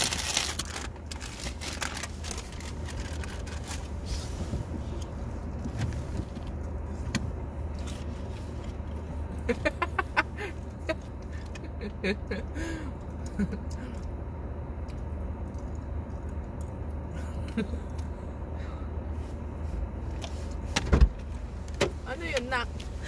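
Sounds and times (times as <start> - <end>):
car engine idling: 0.0 - 23.0.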